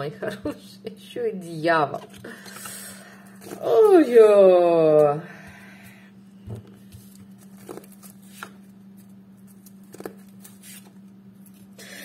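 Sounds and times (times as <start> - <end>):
cards shuffling: 6.8 - 11.7.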